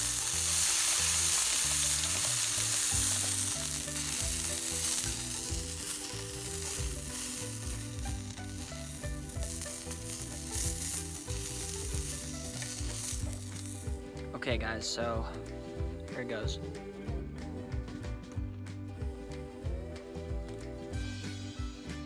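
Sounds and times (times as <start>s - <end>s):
meat sizzling in hot oil: 0.0s - 14.2s.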